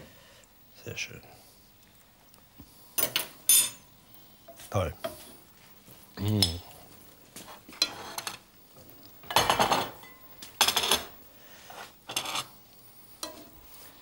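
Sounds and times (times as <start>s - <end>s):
metal spoon scraping a pan: 7.5s - 8.4s, 11.7s - 12.6s, 13.2s - 13.6s.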